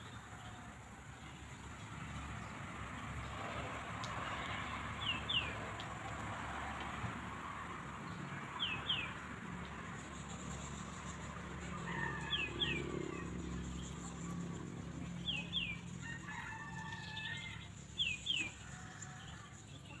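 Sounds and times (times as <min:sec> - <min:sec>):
rooster crowing: 0:11.6 - 0:13.4, 0:15.6 - 0:17.8.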